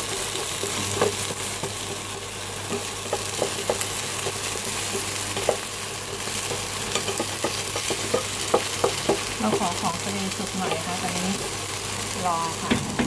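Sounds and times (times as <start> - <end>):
batter sizzling in oil: 0.0 - 13.0
spatula scraping a pan: 2.7 - 11.6.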